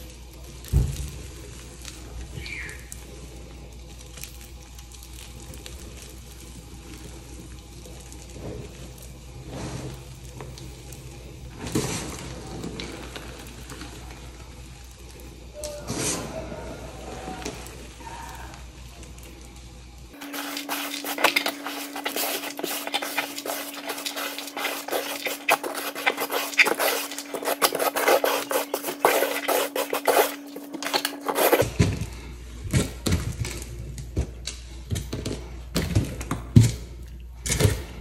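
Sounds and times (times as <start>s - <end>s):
chalk crunching and crumbling: 20.2s - 31.9s.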